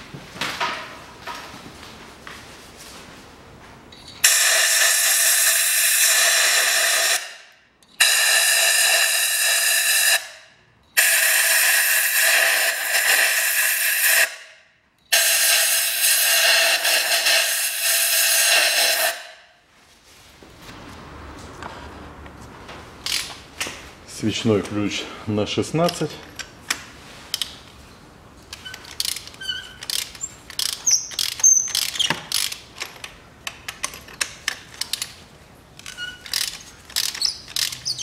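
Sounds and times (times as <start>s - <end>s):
compressed air blow gun hissing: 15.2s - 19.2s.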